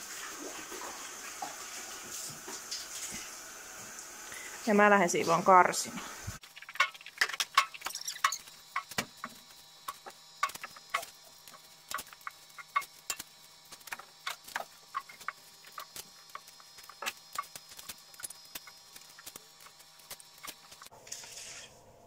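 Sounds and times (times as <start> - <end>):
manure fork scraping stall floor: 20.4 - 21.7.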